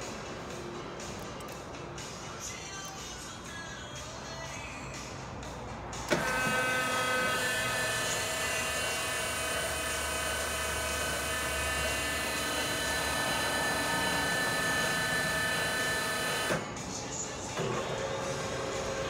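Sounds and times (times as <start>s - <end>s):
lathe motor whine and hum: 6.1s - 16.7s.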